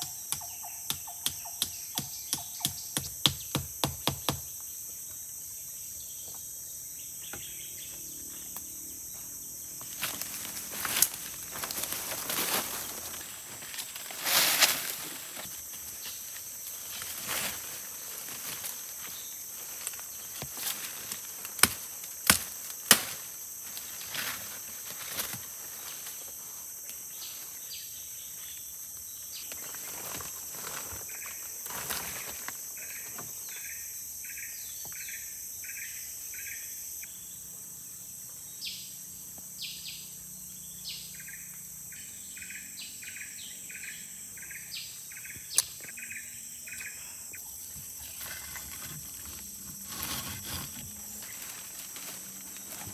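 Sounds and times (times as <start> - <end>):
insects chorus: 0.0 - 52.9
rustling: 9.9 - 21.6, 47.9 - 52.9.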